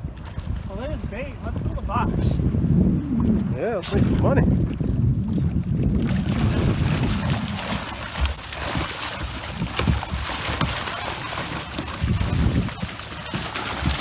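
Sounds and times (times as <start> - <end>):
wind rumble on microphone: 0.0 - 14.0
fish thrashing and splashing: 4.8 - 14.0.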